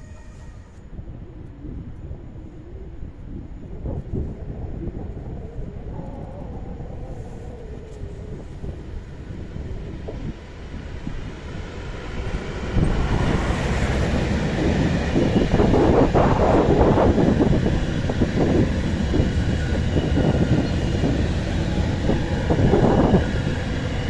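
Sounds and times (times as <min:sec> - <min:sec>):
train wheel and wagon noise: 0:00.0 - 0:02.4, 0:03.5 - 0:24.0
diesel locomotive rumble: 0:08.1 - 0:24.0.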